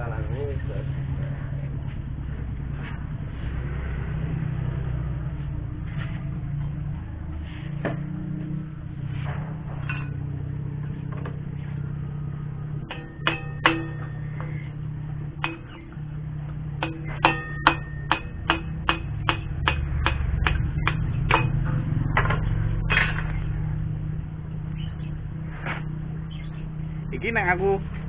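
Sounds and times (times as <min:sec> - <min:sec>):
hammer striking metal punch: 0:09.8 - 0:10.3, 0:12.8 - 0:23.4.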